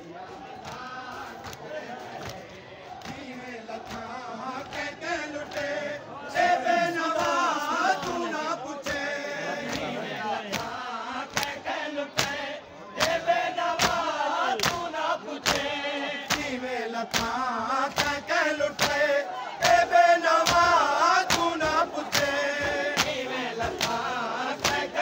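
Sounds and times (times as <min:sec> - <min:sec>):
men chanting in chorus: 0:00.0 - 0:25.0
palms slapping chests: 0:20.4 - 0:24.9.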